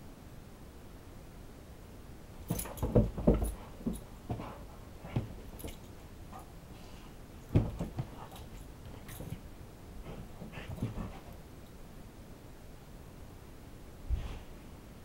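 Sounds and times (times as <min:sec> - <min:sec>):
ball bouncing on carpeted stairs: 0:02.4 - 0:06.5, 0:07.4 - 0:09.5, 0:10.1 - 0:11.4
dog paws landing: 0:02.4 - 0:06.7, 0:07.4 - 0:11.5.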